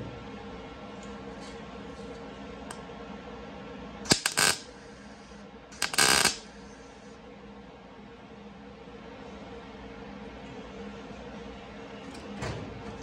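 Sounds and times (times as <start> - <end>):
welder tack welds: 4.1 - 4.8, 5.8 - 6.5.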